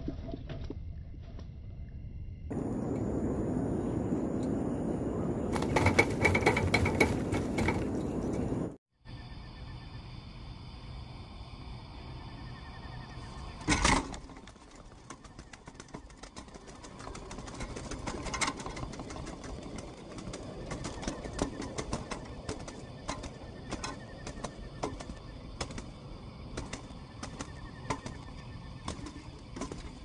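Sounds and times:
wings flapping: 2.5s - 8.8s, 13.6s - 30.0s
birds tapping on wire cage: 5.5s - 8.7s, 13.7s - 30.0s.

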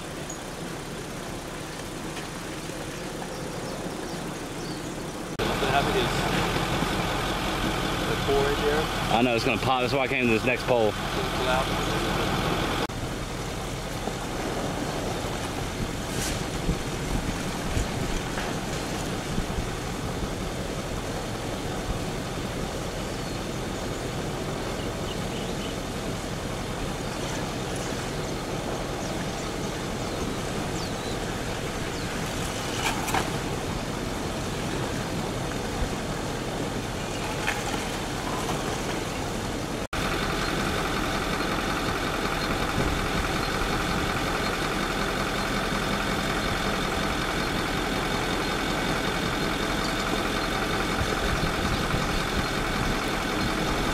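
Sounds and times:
steady hum: 0.0s - 53.9s
lava flow rushing: 9.0s - 24.8s.

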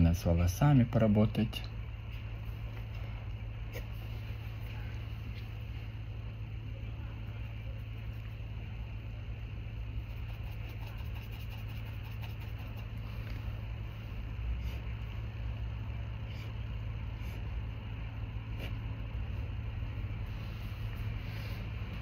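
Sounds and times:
low electrical hum: 0.0s - 22.0s
paintbrush scratching canvas: 9.9s - 13.5s.

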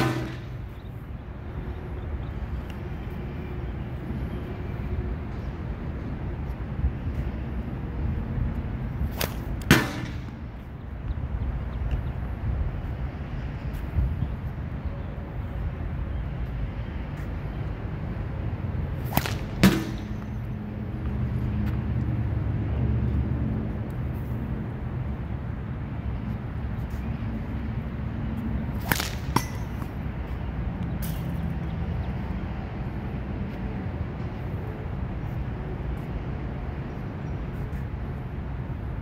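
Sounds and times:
whip-like crack of sling throw: 0.0s - 0.6s, 9.0s - 10.4s, 19.0s - 20.4s, 28.7s - 29.9s.

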